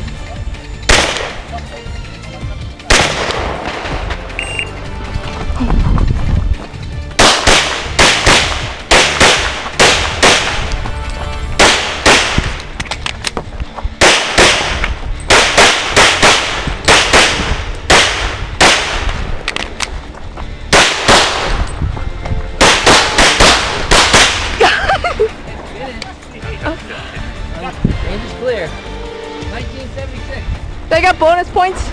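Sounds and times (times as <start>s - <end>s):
pistol shots: 0.9s - 1.4s, 2.9s - 4.1s, 7.2s - 10.7s, 11.6s - 12.7s, 14.0s - 19.3s, 20.7s - 21.6s, 22.6s - 24.6s.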